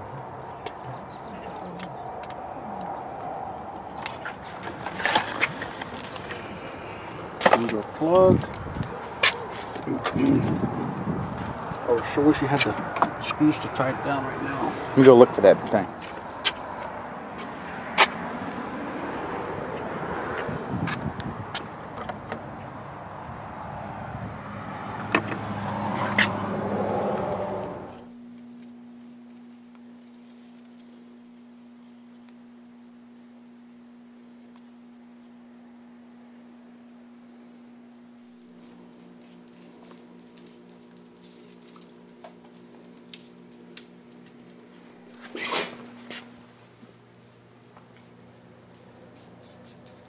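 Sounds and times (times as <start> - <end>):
low engine hum: 0.0 - 29.9, 35.3 - 50.0
low electrical hum: 26.4 - 50.0.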